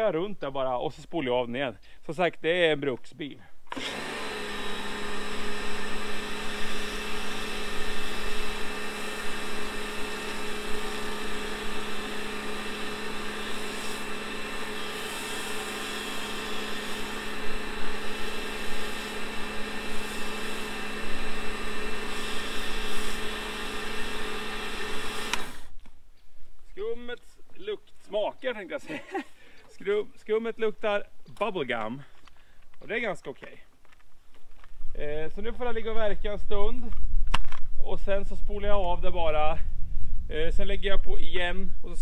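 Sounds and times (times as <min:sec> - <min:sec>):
pressure washer motor and pump hum: 0:03.7 - 0:25.8.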